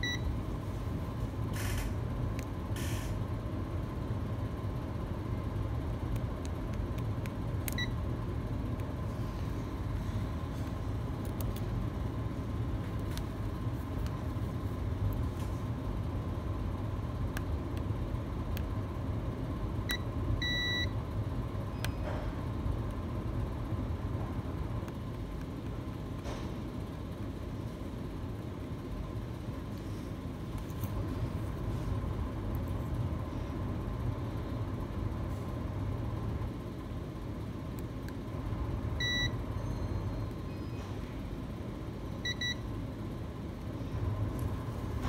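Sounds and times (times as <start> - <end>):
multimeter beeping: 0.0 - 0.4, 19.9 - 21.0, 39.0 - 40.4, 42.2 - 42.7
steady low hum: 0.0 - 45.0.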